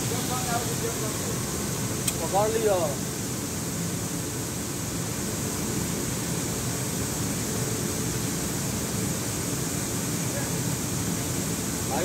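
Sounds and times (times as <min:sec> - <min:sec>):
belt conveyor humming: 0:00.0 - 0:03.0.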